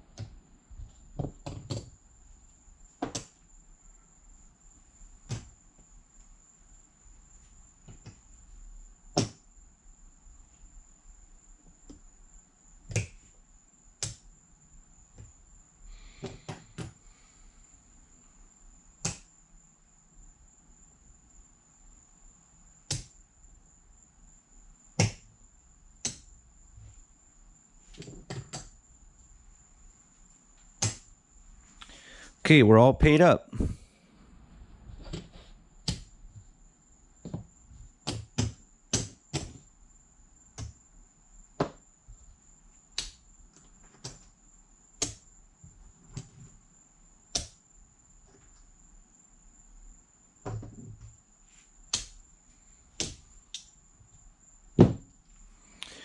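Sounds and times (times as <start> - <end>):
faint high-pitched whine: 0.0 - 38.9.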